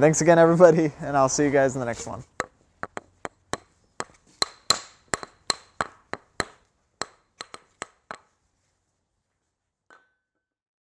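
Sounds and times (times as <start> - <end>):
hammer blows ringing: 3.6 - 7.6.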